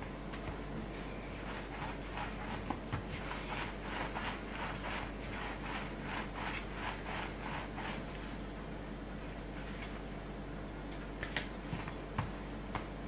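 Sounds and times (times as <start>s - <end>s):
hands rolling dough on wood: 0.0s - 8.5s, 11.2s - 13.0s.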